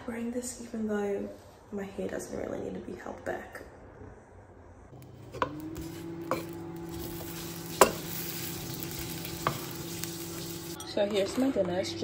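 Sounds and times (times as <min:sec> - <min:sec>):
vegetables sizzling in a frying pan: 0:05.3 - 0:10.8.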